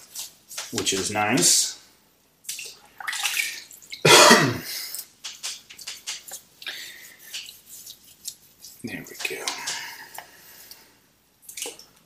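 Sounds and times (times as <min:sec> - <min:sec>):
brush sloshing in bucket: 0:00.0 - 0:01.6, 0:02.5 - 0:04.0, 0:05.6 - 0:10.3
person coughing: 0:04.0 - 0:04.9
brush scrubbing wheel: 0:05.8 - 0:09.6.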